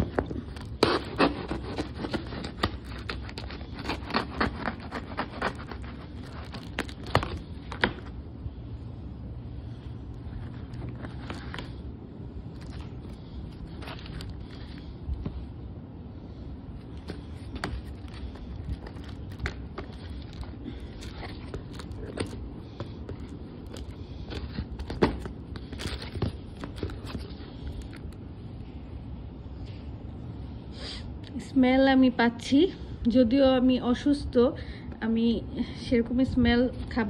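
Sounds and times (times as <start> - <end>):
cardboard box being opened: 0.0 - 8.1, 10.4 - 11.8
tape and cardboard crackling: 0.0 - 8.2, 9.5 - 15.5, 16.8 - 28.2.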